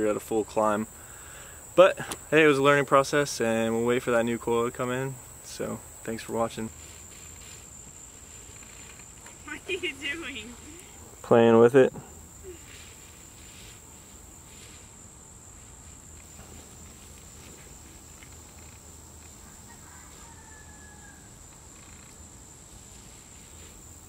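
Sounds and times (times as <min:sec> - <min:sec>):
insects chirring: 0:00.0 - 0:24.0
nylon fabric rustling: 0:06.7 - 0:10.8.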